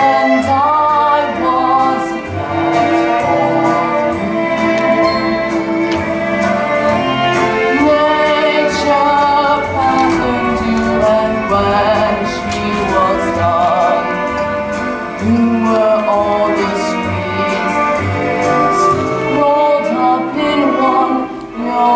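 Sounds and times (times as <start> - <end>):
instrumental accompaniment: 0.0 - 21.9
person singing: 0.0 - 21.9.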